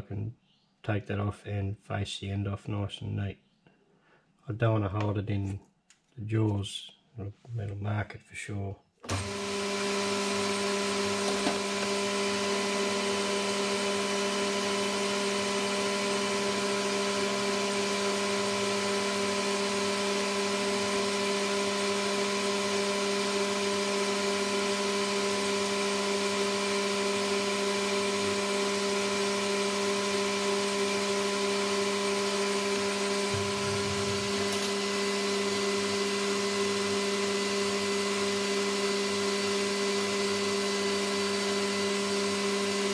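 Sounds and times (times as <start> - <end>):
metal lathe motor whine: 9.1 - 42.9.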